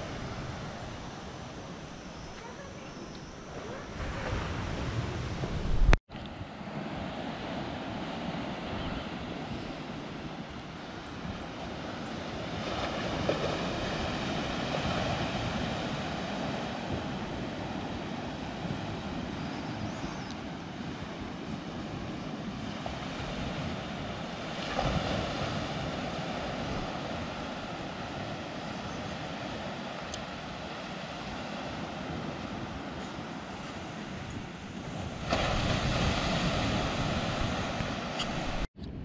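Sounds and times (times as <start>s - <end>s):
wind on microphone: 0.0s - 39.0s
surf washing onto rocky shore: 29.3s - 38.7s.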